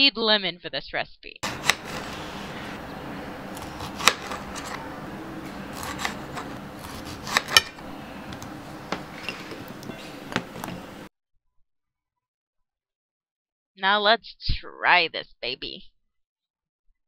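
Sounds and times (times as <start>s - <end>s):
knife slicing lemon: 1.4s - 11.0s.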